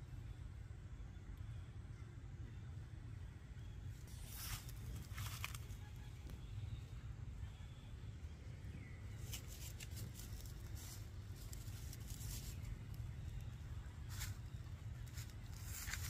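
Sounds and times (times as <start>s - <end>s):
steady low rumble: 0.0s - 16.0s
rustling on dry leaves: 4.0s - 6.3s, 9.1s - 16.0s.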